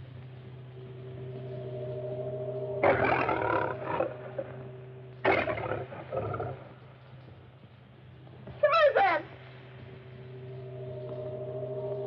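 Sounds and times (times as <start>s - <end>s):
low steady hum: 0.0s - 12.0s
lion roaring: 2.8s - 6.8s.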